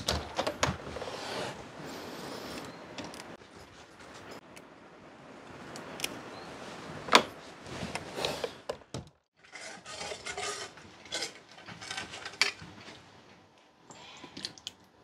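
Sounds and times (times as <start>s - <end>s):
scraping and rubbing: 9.4s - 12.4s.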